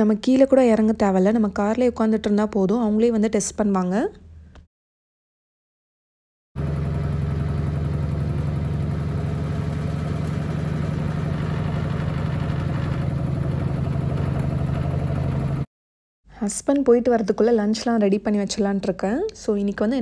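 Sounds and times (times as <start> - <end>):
washing machine motor hum: 6.6 - 15.7.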